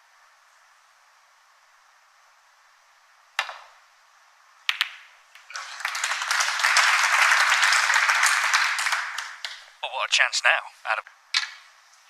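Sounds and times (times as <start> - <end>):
cue striking ball click: 3.4 - 3.8, 4.7 - 5.1
snooker balls colliding: 3.4 - 3.8, 4.7 - 9.7
audience applause: 5.4 - 9.6.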